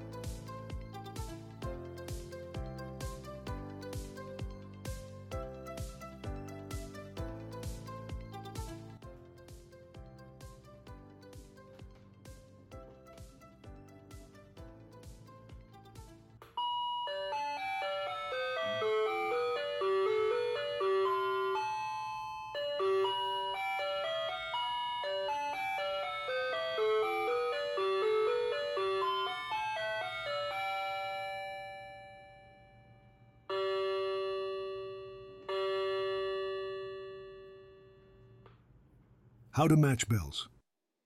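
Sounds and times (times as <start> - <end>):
clock chime tune: 16.6 - 37.7.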